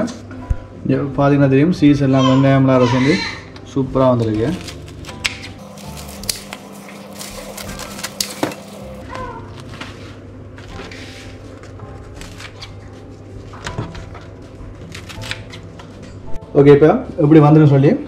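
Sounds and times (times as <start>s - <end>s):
scissors crunching through toast: 4.4s - 9.0s.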